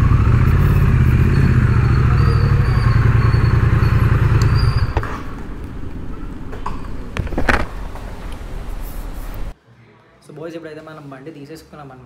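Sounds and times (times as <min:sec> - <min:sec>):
motorcycle engine idling: 0:00.0 - 0:07.2.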